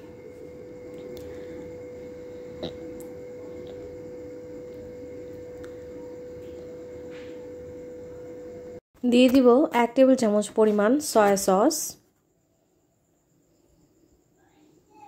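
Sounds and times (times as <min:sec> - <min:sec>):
steady hum: 0:00.0 - 0:08.8.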